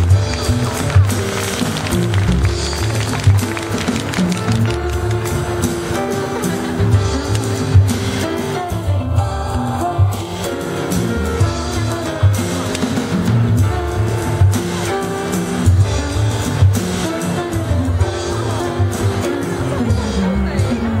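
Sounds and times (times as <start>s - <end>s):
double bass line: 0.0s - 21.0s
woman singing into a microphone: 8.2s - 10.5s.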